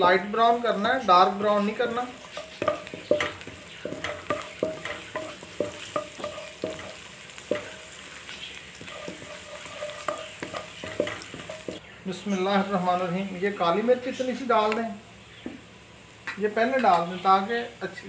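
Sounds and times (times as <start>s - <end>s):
garlic sizzling in a wok: 0.0s - 18.0s
wooden spatula knocking on pan: 2.0s - 8.0s, 8.7s - 11.8s.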